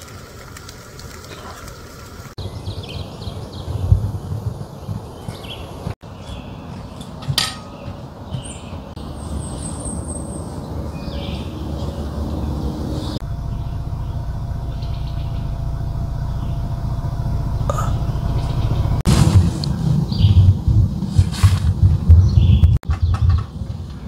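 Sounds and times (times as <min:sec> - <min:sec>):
wind rumbling on microphone: 0:00.0 - 0:24.0
bird trill: 0:05.3 - 0:16.8, 0:17.6 - 0:19.0.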